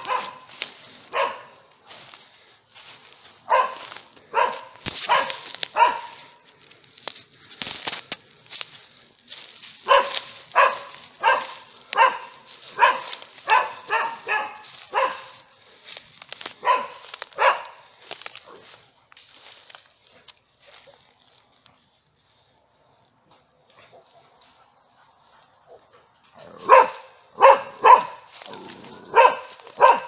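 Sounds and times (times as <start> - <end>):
dog barking: 0.0 - 2.1, 3.3 - 6.4, 9.8 - 15.5, 16.6 - 18.8, 23.7 - 30.0
rustling in dry leaves: 0.0 - 30.0.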